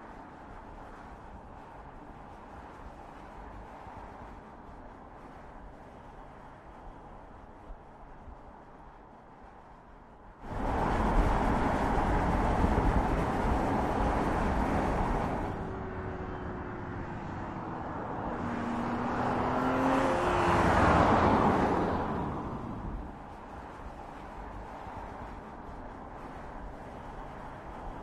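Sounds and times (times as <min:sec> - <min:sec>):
car driving past: 0:14.2 - 0:23.1.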